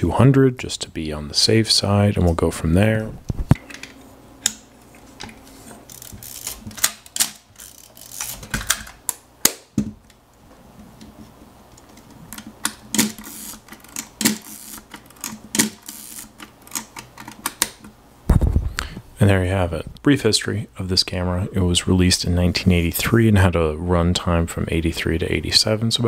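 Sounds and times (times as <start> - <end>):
film camera mechanical clicks: 12.9 - 17.7.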